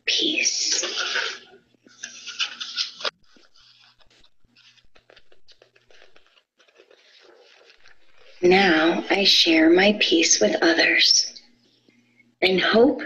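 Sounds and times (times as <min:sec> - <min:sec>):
paper page turning rustle: 0:00.7 - 0:08.4.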